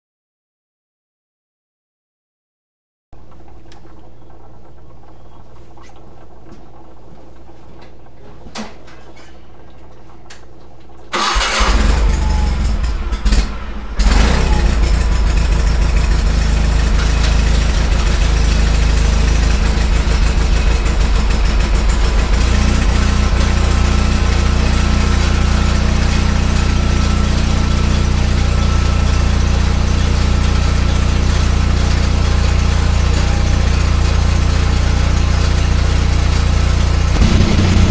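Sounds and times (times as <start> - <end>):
engine starter cranking: 11.1 - 15.2, 37.2 - 37.9
tractor engine running: 11.2 - 34.5, 36.7 - 37.9.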